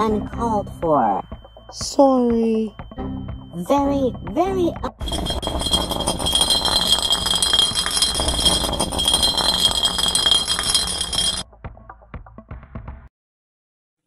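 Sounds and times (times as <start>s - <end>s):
loud rattling clattering: 5.0s - 11.4s.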